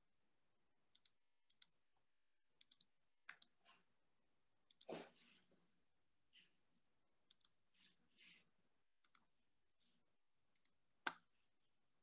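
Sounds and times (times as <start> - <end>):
computer mouse clicks: 0.9 - 1.8, 2.6 - 3.6, 4.7 - 4.9, 7.3 - 7.6, 9.0 - 9.3, 10.5 - 11.2.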